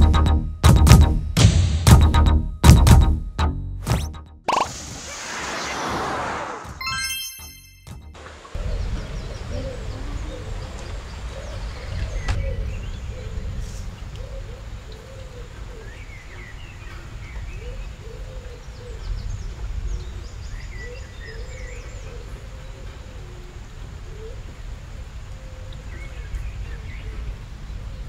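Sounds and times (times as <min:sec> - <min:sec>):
bird cooing calls: 0:08.6 - 0:13.6, 0:14.2 - 0:16.1.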